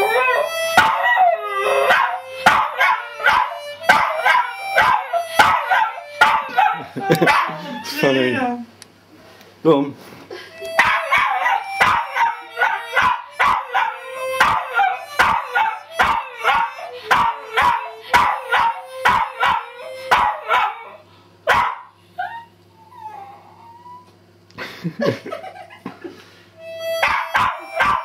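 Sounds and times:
harmonica blasts: 0.0 - 8.2, 10.4 - 20.9, 26.4 - 28.0
dog howling: 0.0 - 8.6, 10.8 - 24.2, 27.0 - 28.0.

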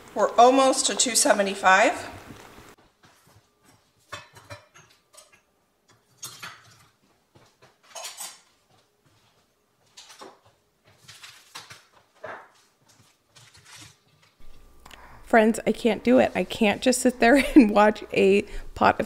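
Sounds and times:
kitchenware clinking and knocking: 4.1 - 7.0, 7.8 - 8.6.

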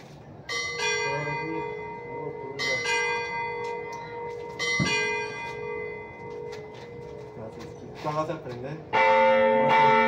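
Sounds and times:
church bells ringing: 0.4 - 10.0.

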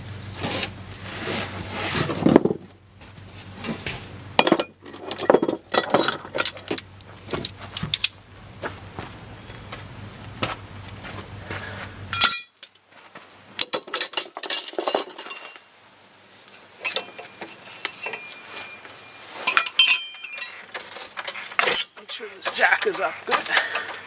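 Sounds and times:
steel tools clinking: 4.4 - 8.2, 12.1 - 12.8, 13.6 - 15.7, 16.7 - 24.0.

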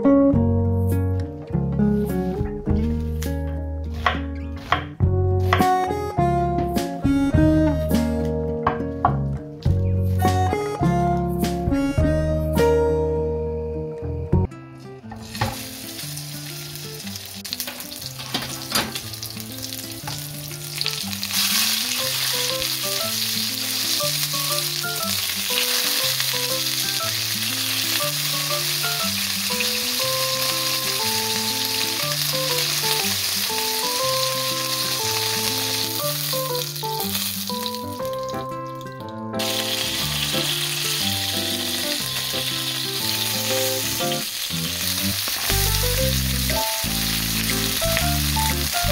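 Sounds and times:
background music with bass line: 0.0 - 14.5, 38.0 - 48.9
meat sizzling in a frying pan: 15.2 - 38.4, 39.4 - 48.9.

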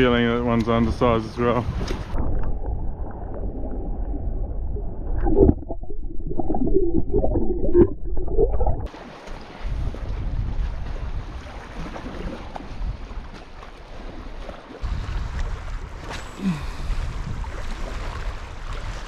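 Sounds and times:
wind: 0.0 - 5.4, 8.8 - 19.0
underwater rushing and gurgling: 1.3 - 19.0
bubbly knocks underwater: 2.1 - 8.9
water lapping: 8.8 - 19.0.

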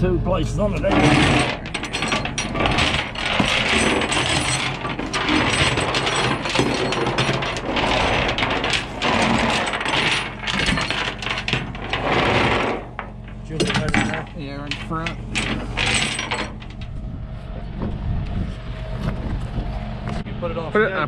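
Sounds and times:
truck engine humming: 0.0 - 4.1
chains rattling on steel deck: 0.8 - 17.0.

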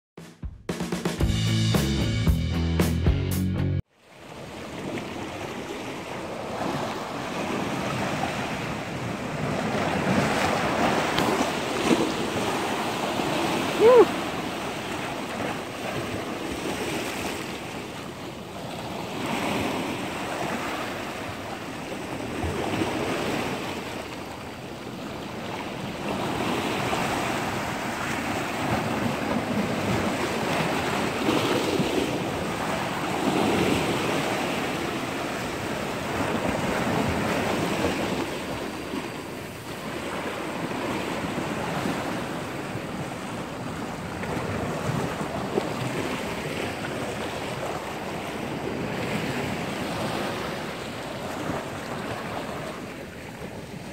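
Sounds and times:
sea surf over rocks: 4.0 - 53.9.

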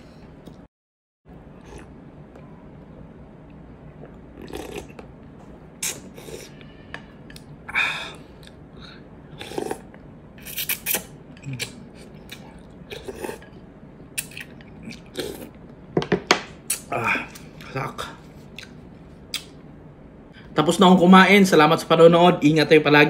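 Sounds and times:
slurping noodles: 4.0 - 5.0, 5.8 - 6.6, 9.3 - 11.8.

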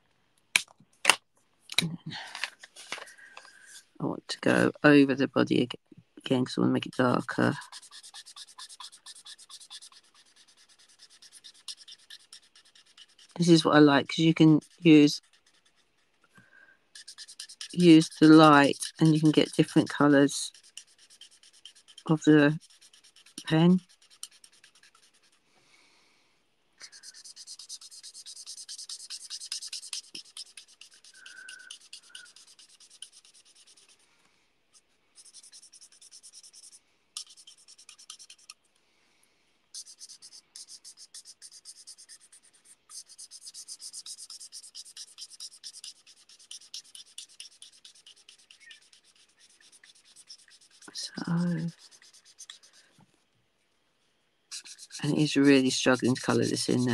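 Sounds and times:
marker nib scratching on card: 6.5 - 16.2, 16.9 - 25.4, 26.8 - 34.0, 34.7 - 38.6, 39.7 - 52.9, 54.5 - 56.9.

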